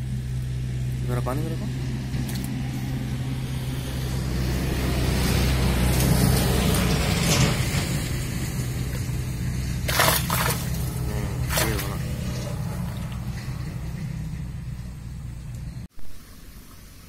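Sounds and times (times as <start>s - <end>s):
steady low rumble: 0.0s - 15.9s
fish splashing in water: 2.2s - 6.8s, 8.1s - 13.4s.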